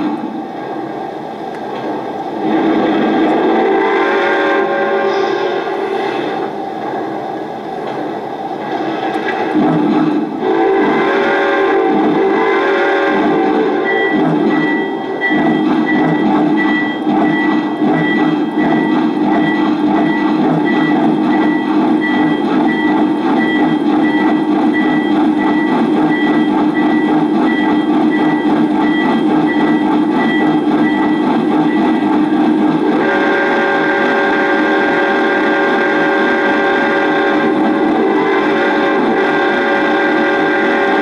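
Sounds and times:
model steam train chuffing: 0:02.3 - 0:07.2, 0:08.5 - 0:41.0
multi-tone train whistle: 0:02.4 - 0:06.6, 0:10.4 - 0:41.0
bell ringing: 0:13.9 - 0:32.1.

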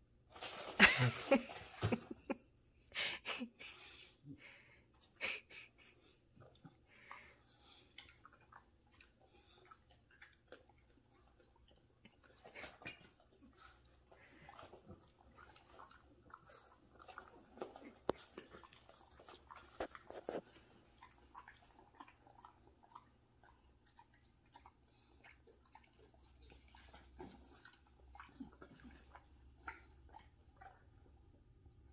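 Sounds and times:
puppy chewing leafy greens: 0:07.7 - 0:31.2.

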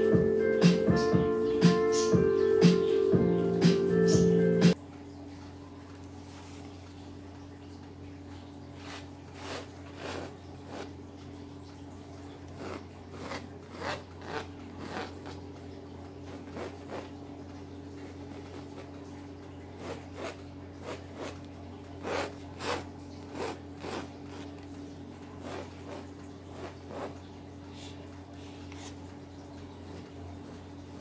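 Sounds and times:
pencil scratching on canvas: 0:08.8 - 0:11.0, 0:12.5 - 0:15.4, 0:16.3 - 0:17.1, 0:19.8 - 0:21.4, 0:22.0 - 0:24.6, 0:25.4 - 0:27.2.

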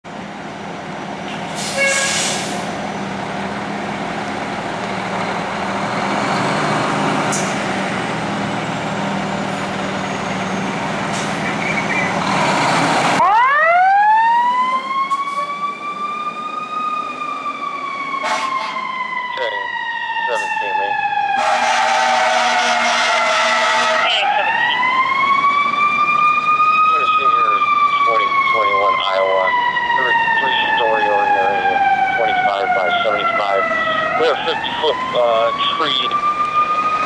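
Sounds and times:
diesel engine running: 0:00.1 - 0:13.4
siren wailing: 0:08.0 - 0:37.0.

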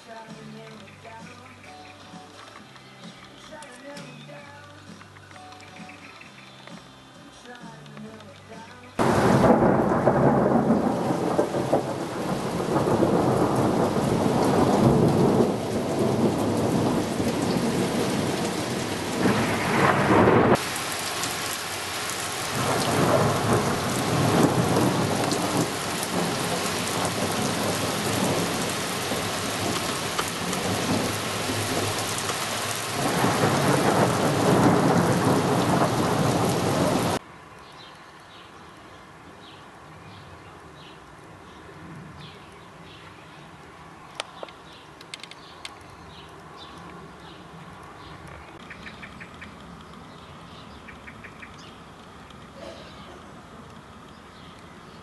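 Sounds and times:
hail drumming on car roof: 0:09.0 - 0:37.2
hail pattering on ground: 0:09.0 - 0:37.2.

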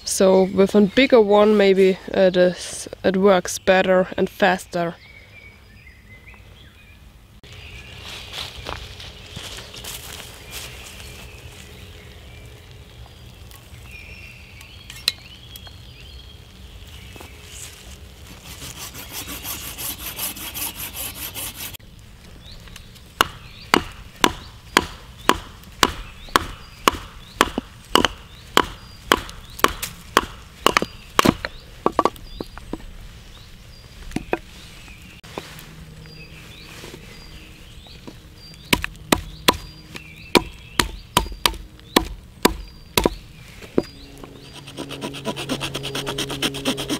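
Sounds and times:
rustling: 0:16.5 - 0:24.7, 0:27.8 - 0:38.7
hatchet splitting wood: 0:23.2 - 0:32.2, 0:38.7 - 0:39.7, 0:40.3 - 0:43.2.

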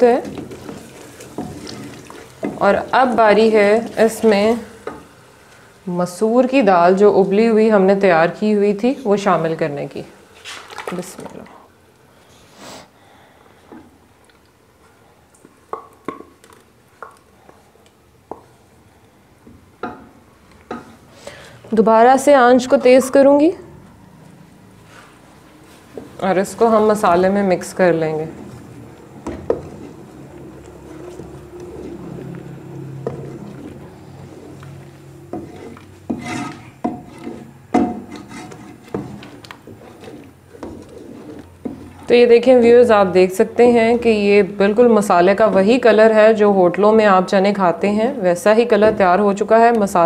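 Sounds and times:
wooden spoon scraping a pot: 0:00.0 - 0:05.6, 0:24.8 - 0:46.4
paste being scraped: 0:35.4 - 0:42.1.

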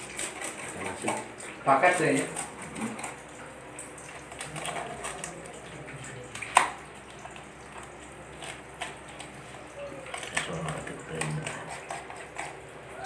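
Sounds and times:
knife scraping fish scales: 0:11.1 - 0:12.7.

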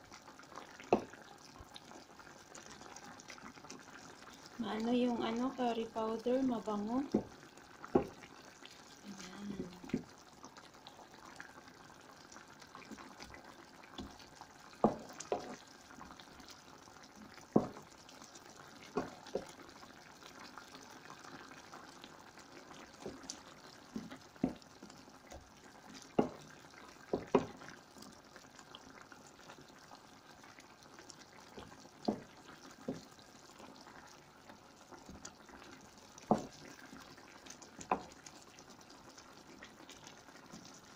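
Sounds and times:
curry simmering and bubbling: 0:00.0 - 0:40.9
wooden spoon knocking pan: 0:00.9 - 0:01.2, 0:07.0 - 0:08.2, 0:14.8 - 0:15.6, 0:17.6 - 0:17.8, 0:18.9 - 0:19.5, 0:24.0 - 0:24.6, 0:26.1 - 0:26.4, 0:27.1 - 0:27.6, 0:32.0 - 0:32.3, 0:36.3 - 0:36.6, 0:37.8 - 0:38.1.

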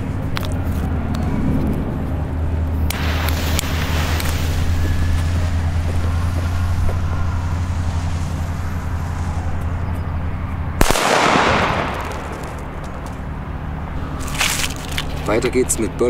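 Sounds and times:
low hum: 0:00.0 - 0:15.3
firecracker bang: 0:10.8 - 0:13.3.

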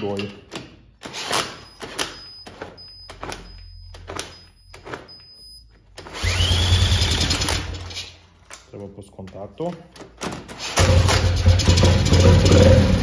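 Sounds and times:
power tool spinning engine over: 0:06.2 - 0:07.8.

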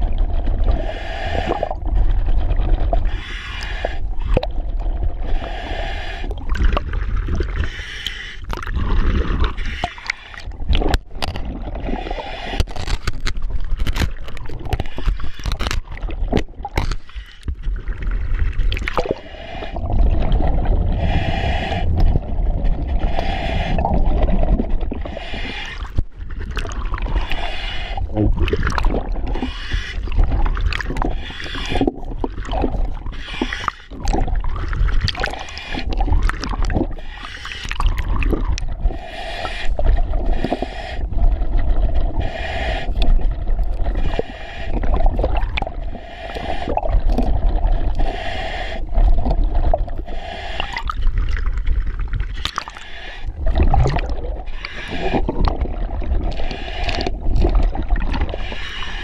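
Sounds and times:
exhaust bubbles rumbling: 0:00.0 - 0:00.9, 0:17.9 - 0:25.2, 0:53.3 - 0:58.5
scraper on chain underwater: 0:12.5 - 0:17.1.

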